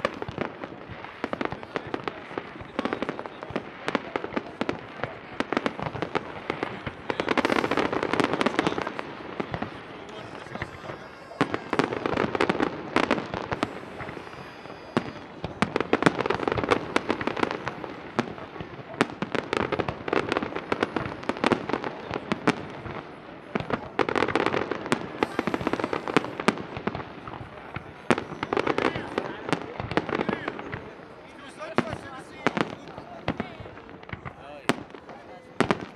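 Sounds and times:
fireworks bangs and crackling: 0.0s - 35.9s.

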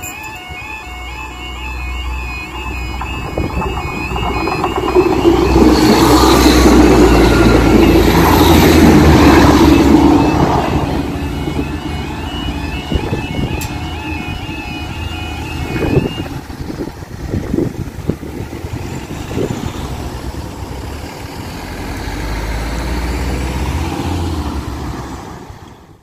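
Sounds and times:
level crossing alarm warble: 0.0s - 20.4s
van passing close: 0.7s - 26.0s
cars driving past: 1.5s - 26.0s.

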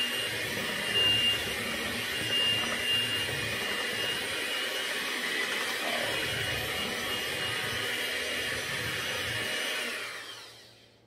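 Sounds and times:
electric hand mixer whining: 0.0s - 11.0s.

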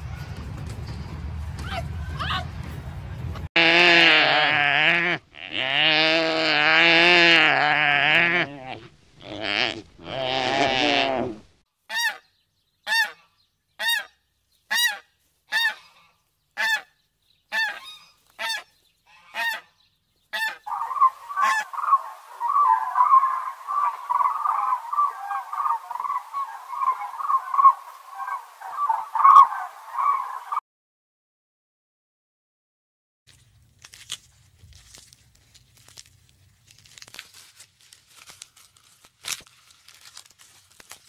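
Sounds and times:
animal calls: 3.6s - 12.2s, 20.3s - 30.6s.

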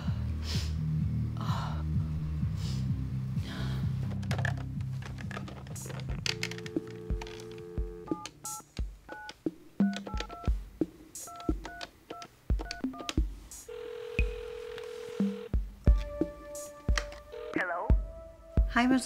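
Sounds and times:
telephone dial tone: 5.4s - 10.5s, 11.3s - 16.2s, 16.9s - 17.9s
keypad beeps: 6.0s - 10.6s, 11.2s - 13.2s
telephone ringing tone: 6.2s - 10.5s, 11.3s - 15.6s, 17.2s - 18.0s.

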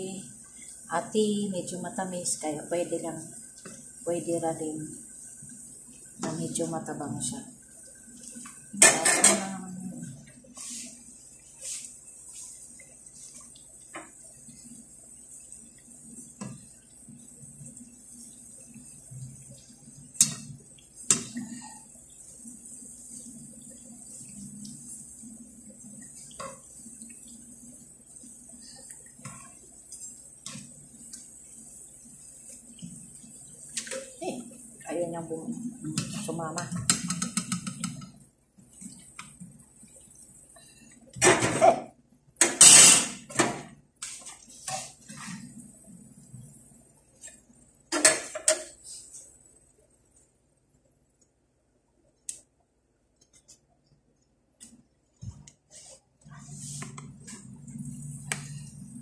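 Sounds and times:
dough sizzling in oil: 0.0s - 41.3s, 42.4s - 50.2s
frying pan clattering and scraping: 42.4s - 43.6s.

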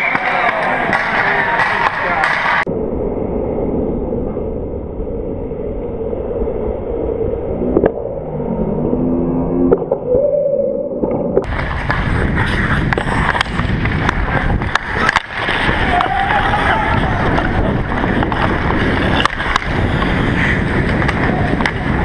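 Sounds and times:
sticks and puck knocking: 0.0s - 2.6s, 12.9s - 20.2s
low microphone rumble: 2.6s - 22.0s
skate blades scraping ice: 11.5s - 22.0s.

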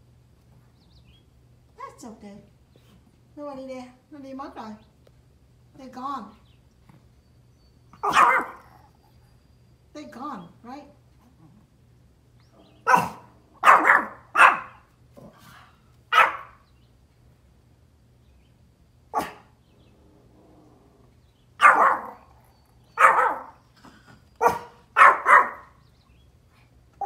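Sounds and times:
small dog barking: 8.0s - 8.8s, 12.8s - 14.9s, 16.1s - 16.6s, 19.1s - 19.6s, 21.6s - 23.6s, 24.4s - 25.8s.

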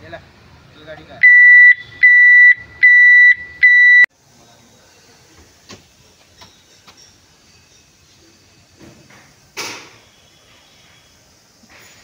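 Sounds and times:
electronic warning buzzer beeping: 1.2s - 4.1s.

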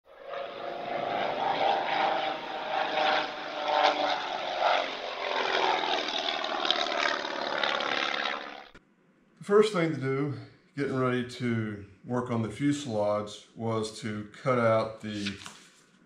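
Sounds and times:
propeller aircraft engine running: 0.0s - 8.8s.

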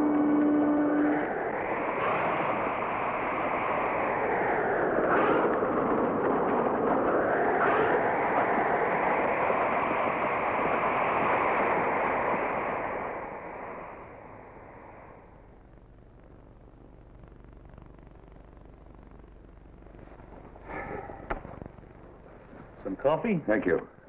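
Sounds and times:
blizzard wind rushing: 0.0s - 15.5s
whistling wind gusts: 0.0s - 15.5s.

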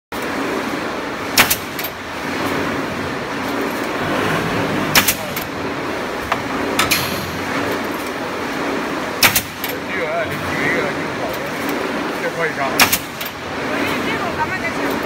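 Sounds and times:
machine running noise: 0.1s - 15.0s
pneumatic nailer bangs: 1.4s - 1.9s, 4.8s - 5.5s, 9.2s - 9.7s, 12.8s - 13.3s.

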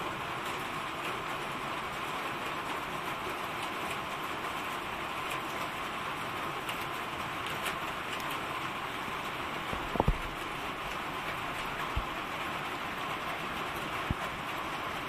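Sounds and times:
steady rain: 0.0s - 15.0s
gusty wind: 9.7s - 10.4s.

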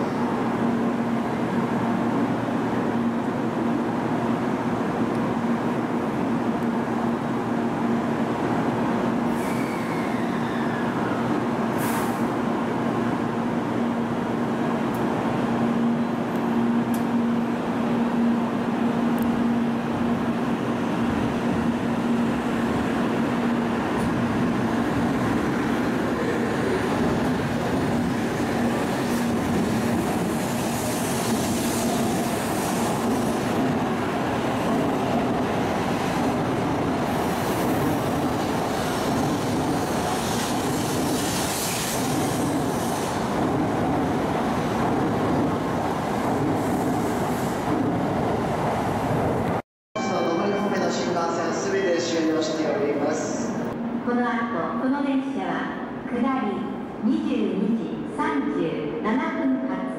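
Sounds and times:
train cars rolling with low hum: 0.0s - 49.6s
train pulling out and speeding up: 8.0s - 50.2s.

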